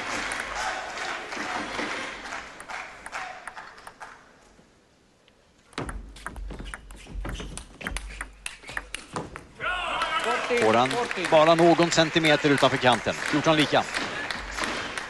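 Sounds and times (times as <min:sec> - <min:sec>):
applause: 0:00.0 - 0:04.2, 0:10.0 - 0:15.0
table tennis ball clicking: 0:05.8 - 0:09.2.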